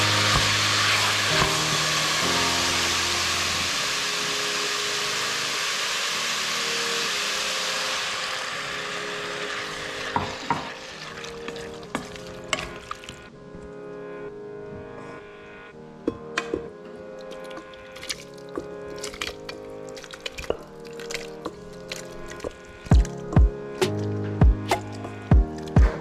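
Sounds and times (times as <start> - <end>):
mushrooms sizzling in a pan: 0.0 - 12.5
hot water pouring: 0.0 - 13.3, 17.1 - 24.1.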